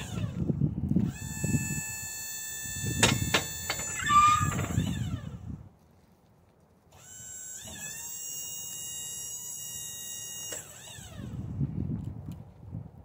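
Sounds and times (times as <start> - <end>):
electric motor whining: 0.0 - 5.6, 6.9 - 11.7.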